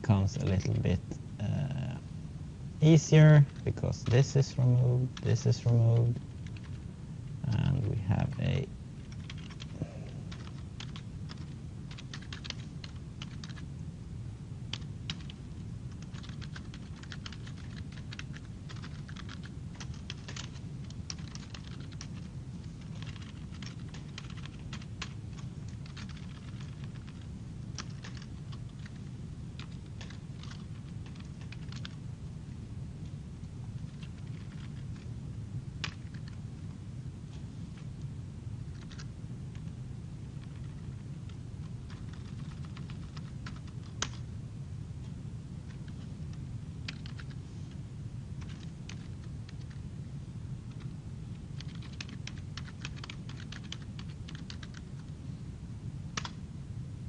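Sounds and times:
steady low hum: 0.0 - 57.0
computer keyboard typing: 3.4 - 6.8, 7.4 - 13.6, 14.7 - 29.0, 29.6 - 32.0, 33.9 - 35.1, 35.8 - 36.4, 38.7 - 39.7, 40.4 - 44.3, 46.8 - 47.4, 48.4 - 49.8, 50.7 - 50.9, 51.6 - 55.1, 56.2 - 56.4.

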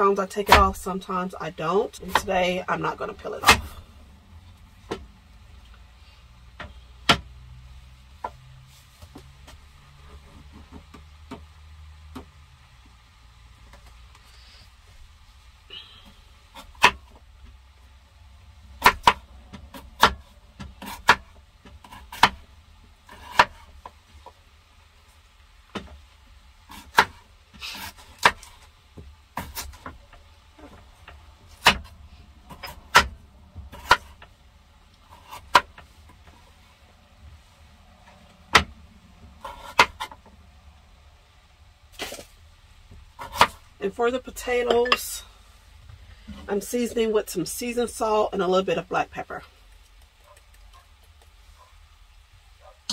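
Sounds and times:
low steady hum: 0.0 - 52.9
knife chopping on wooden board: 18.8 - 22.4, 23.1 - 23.7, 26.7 - 27.2, 31.5 - 31.9, 32.5 - 34.3, 39.4 - 40.2, 42.9 - 43.6.

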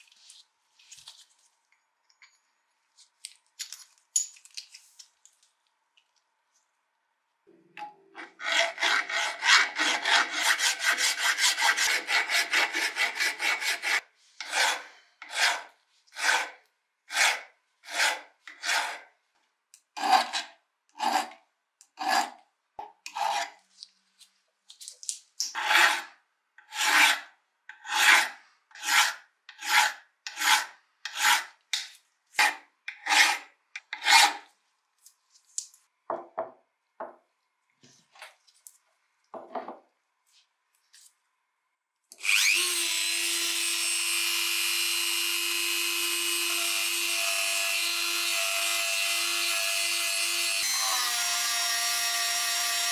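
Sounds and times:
hand file scraping steel: 8.2 - 19.1, 20.0 - 21.4, 22.0 - 22.4, 23.1 - 23.6, 25.5 - 31.6, 32.4 - 34.5.

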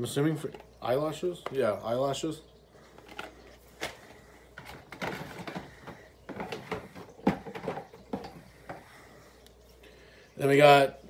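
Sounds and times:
packaging clicks and rustles: 2.9 - 8.3.

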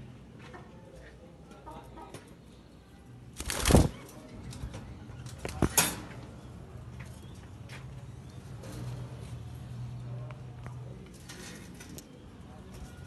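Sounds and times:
birds flapping wings: 3.4 - 4.1.

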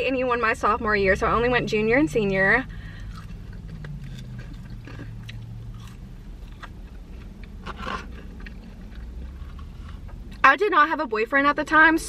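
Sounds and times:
low steady hum: 0.0 - 12.0
person chewing food: 2.8 - 10.4.

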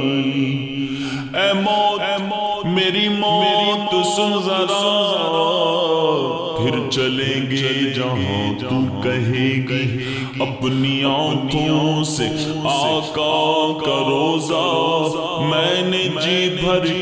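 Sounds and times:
person singing devotional poetry: 0.0 - 17.0.

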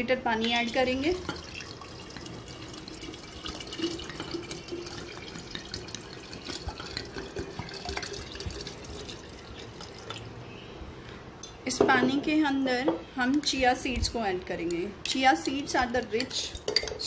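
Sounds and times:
water pouring into a jar: 0.6 - 10.4.

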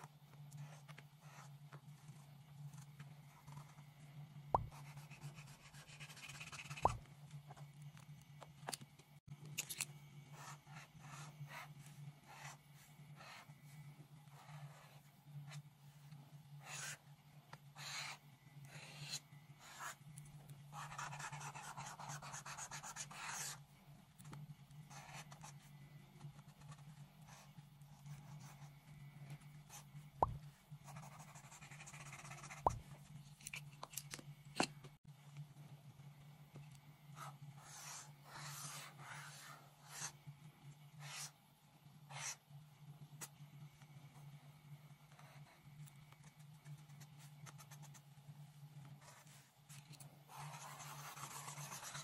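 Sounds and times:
steady low hum: 0.0 - 52.0
marker scratching on paper: 4.6 - 7.6, 16.6 - 17.0, 17.8 - 20.0, 20.8 - 23.6, 24.9 - 25.5, 29.7 - 33.0, 37.2 - 40.2, 41.0 - 41.4, 42.1 - 42.4, 49.0 - 49.5, 50.3 - 52.0.

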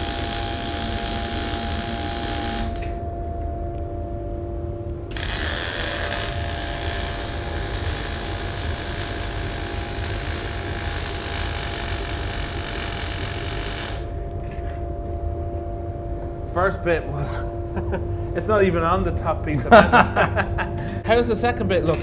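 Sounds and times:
welding arc crackling hiss: 0.0 - 3.0, 5.1 - 14.1.

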